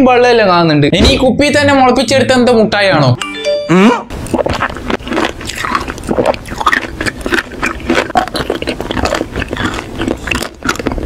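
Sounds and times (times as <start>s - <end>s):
mouth clicks: 3.7s - 11.0s
teeth crunching hard candy: 4.1s - 11.0s.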